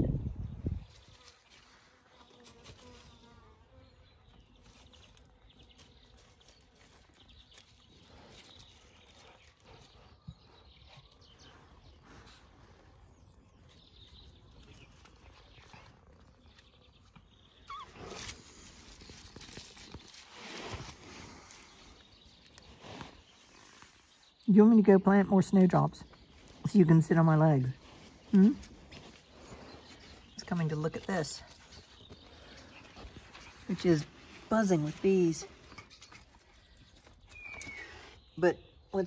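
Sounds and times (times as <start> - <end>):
rustle: 0.8 - 9.9, 10.9 - 24.4
bees buzzing faintly: 1.1 - 6.7.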